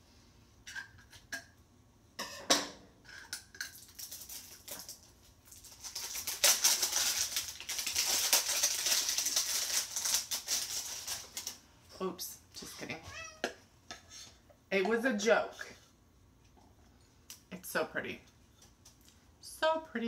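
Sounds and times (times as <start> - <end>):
plastic wrapping crackling: 3.8 - 11.6.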